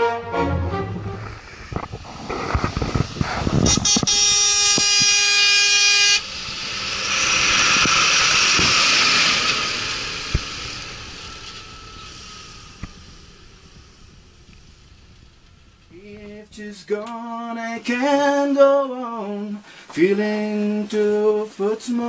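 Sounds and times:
truck passing by: 6.0 - 15.3.

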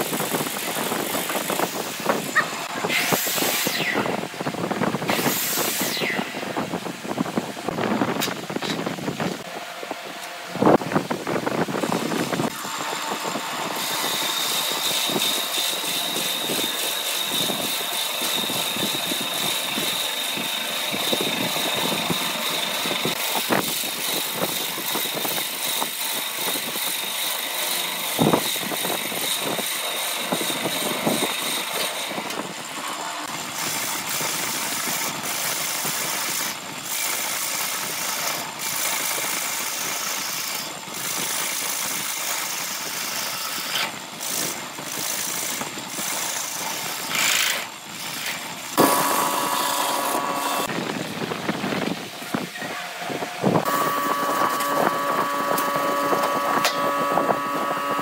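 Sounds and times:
boring bit cutting wood: 0.0 - 6.8, 11.8 - 58.0
gouge cutting spinning wood: 0.0 - 7.6, 10.7 - 58.0
high whine: 0.0 - 13.6, 48.8 - 58.0
wood lathe running: 11.8 - 58.0.

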